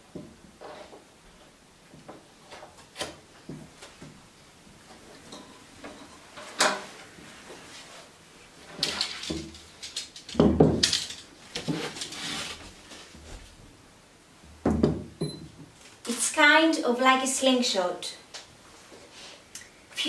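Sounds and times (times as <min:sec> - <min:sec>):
wooden boards scraping: 0:10.7 - 0:13.1
wooden boards knocking on table: 0:14.6 - 0:15.2.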